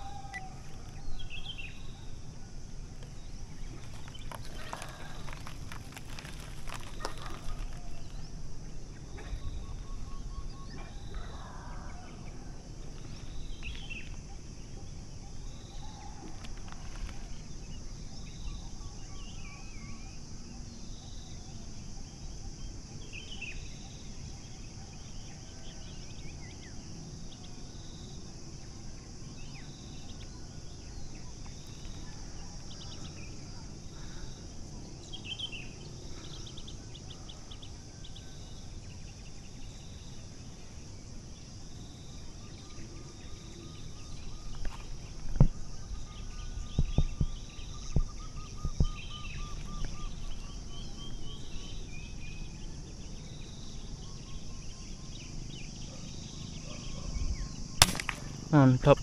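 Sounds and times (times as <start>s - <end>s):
small birds chirping and trilling: 0.0s - 57.8s
high insect drone: 0.0s - 59.0s
wind rumble on microphone: 44.0s - 52.5s.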